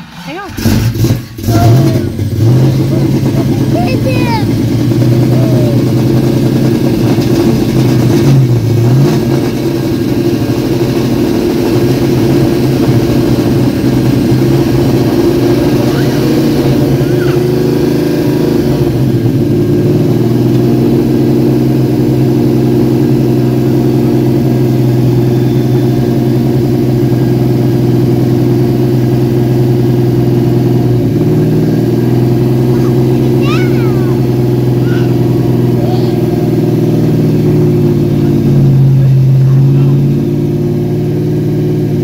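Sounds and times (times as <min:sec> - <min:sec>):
car engine idling: 0:00.0 - 0:42.0.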